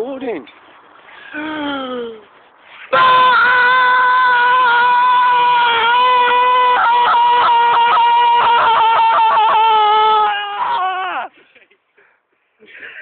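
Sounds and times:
man screaming high-pitched yell: 0:03.0 - 0:11.3.

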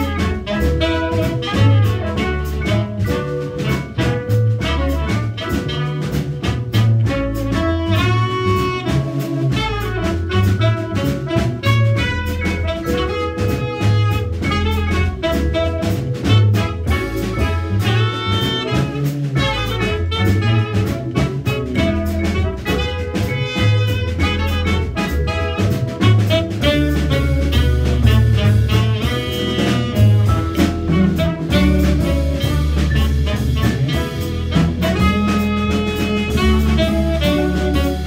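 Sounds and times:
drum kit: 0:00.0 - 0:38.0
plucked upright bass: 0:00.0 - 0:38.0
trumpet melody: 0:00.0 - 0:38.0.

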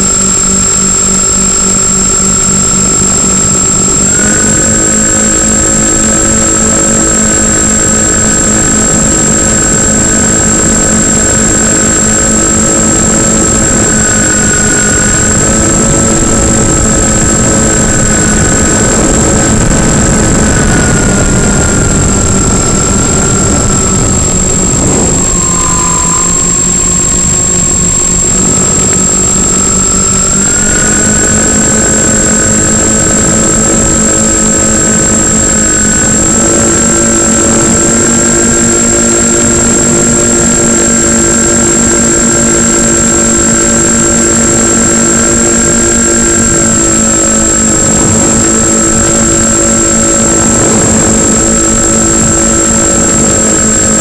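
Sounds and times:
air rush: 0:00.0 - 0:38.6, 0:46.0 - 0:54.0
thin high tone: 0:00.0 - 0:39.4
electric motors and propellers whining: 0:00.0 - 0:54.0.

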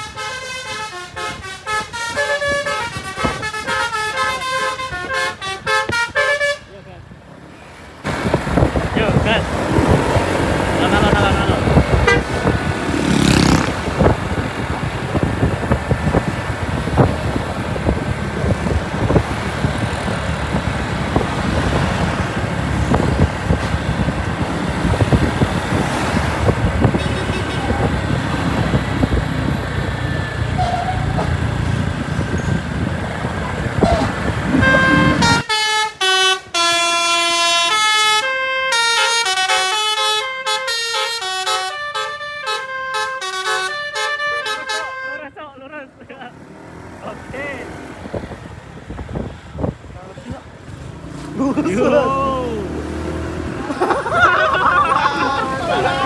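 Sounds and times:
bus horn playing melody: 0:00.0 - 0:06.7, 0:11.7 - 0:12.5, 0:26.8 - 0:27.9, 0:33.8 - 0:45.3
road traffic: 0:00.0 - 0:56.0
heavy bus running past: 0:06.9 - 0:56.0.

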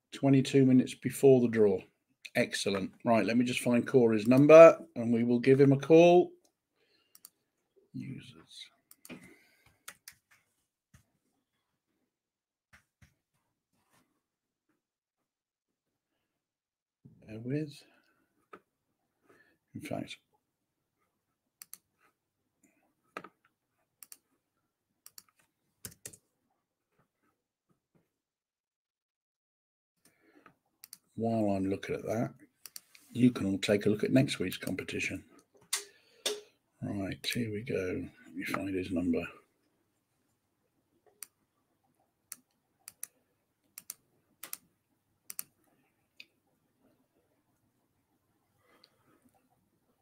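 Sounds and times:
faint keyboard and mouse clicks: 0:02.2 - 0:03.0, 0:04.2 - 0:04.5, 0:06.4 - 0:07.4, 0:08.8 - 0:11.1, 0:21.6 - 0:24.3, 0:25.0 - 0:26.3, 0:30.0 - 0:31.2, 0:32.6 - 0:33.1, 0:42.3 - 0:44.7, 0:45.3 - 0:46.4
keyboard typing: 0:25.1 - 0:26.2.

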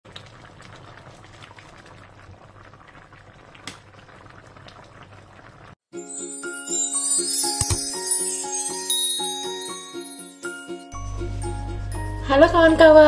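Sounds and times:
stew simmering and bubbling: 0:00.0 - 0:05.8
jingly tune with bell tones: 0:06.0 - 0:11.2
sharp click: 0:07.6 - 0:07.9.

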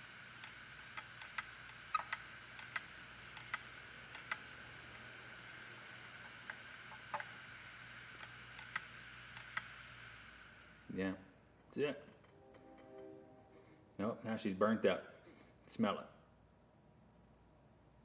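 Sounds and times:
hard drive head clicking: 0:00.0 - 0:10.1
hard drive platters whining: 0:00.0 - 0:13.2.

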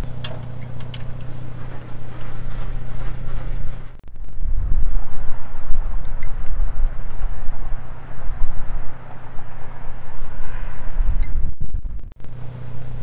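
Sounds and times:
vehicle engine idling: 0:00.0 - 0:04.0, 0:12.2 - 0:13.0
uneven low rumble: 0:00.0 - 0:13.0.

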